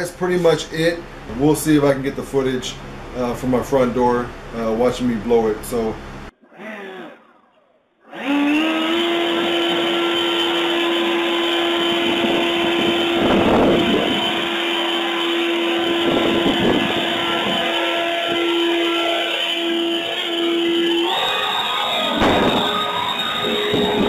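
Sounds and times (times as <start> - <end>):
leaf blower whining: 8.1 - 24.0.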